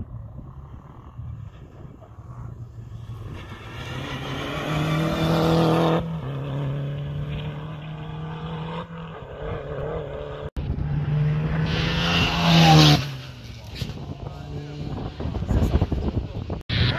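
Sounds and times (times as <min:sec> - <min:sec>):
rally car approaching: 0:00.0 - 0:16.9
rally car engine revving past: 0:03.0 - 0:15.5.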